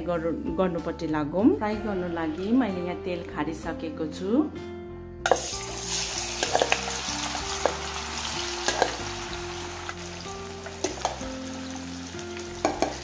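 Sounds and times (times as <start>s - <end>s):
potatoes sizzling in hot oil: 5.3s - 13.0s.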